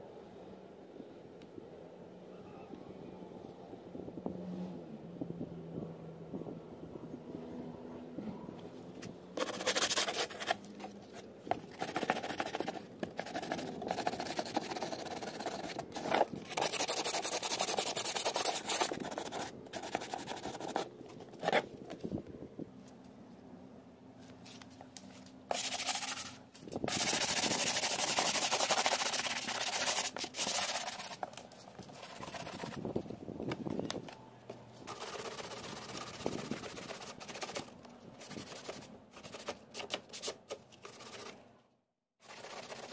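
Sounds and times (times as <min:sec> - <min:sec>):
hand sanding rasping strokes: 0:11.8 - 0:20.9, 0:25.5 - 0:31.2.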